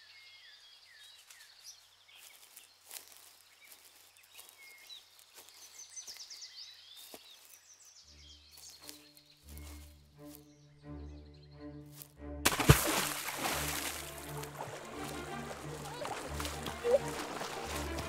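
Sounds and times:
small birds chirping: 0.0s - 12.2s
music: 8.0s - 18.0s.

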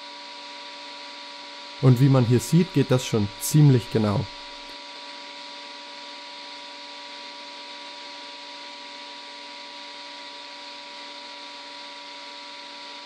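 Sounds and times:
steady hum tones: 1.8s - 4.7s.

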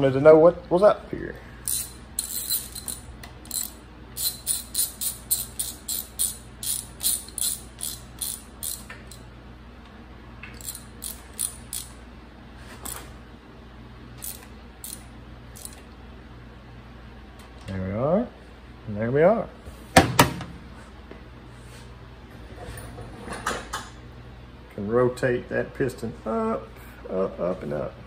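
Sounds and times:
ratchet wrench clicking: 1.6s - 9.2s, 10.5s - 12.0s, 14.2s - 15.8s.

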